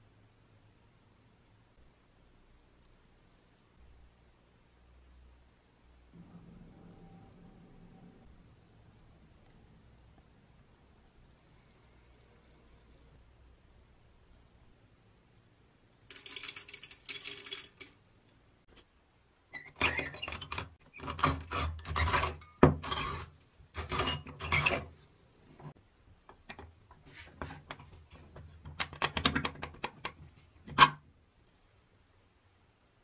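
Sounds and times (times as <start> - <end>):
coffee beans rattling into metal: 16.1 - 18.0.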